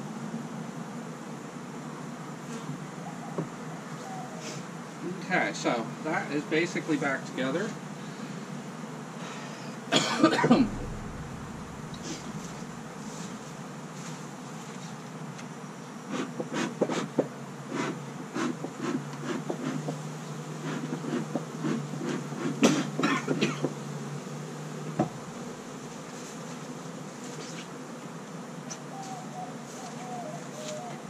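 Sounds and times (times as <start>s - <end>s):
bees buzzing: 0.0s - 31.0s
bee smoker bellows puffing: 16.2s - 23.8s.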